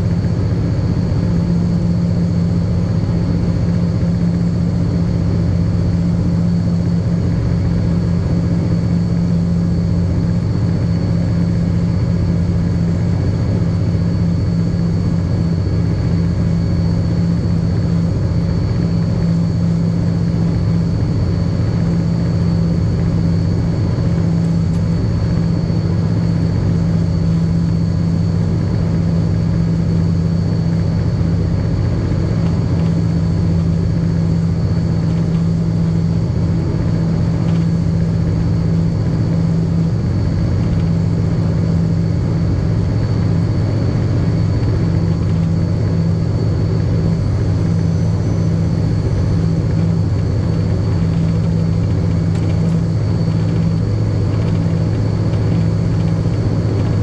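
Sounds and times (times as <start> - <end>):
locomotive engine droning: 0.0 - 57.0
thin high whine: 0.0 - 57.0.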